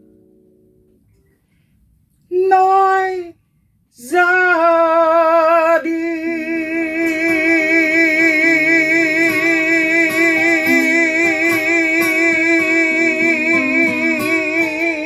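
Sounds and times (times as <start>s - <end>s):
acoustic guitars playing: 0.0s - 1.7s, 6.3s - 15.0s
man singing with vibrato: 2.3s - 3.4s, 4.0s - 15.0s.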